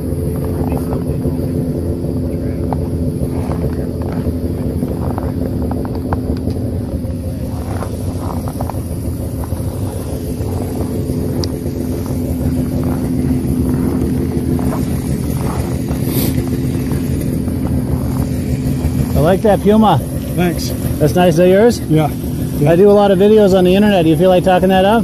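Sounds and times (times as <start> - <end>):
engine idling: 0.0 - 25.0.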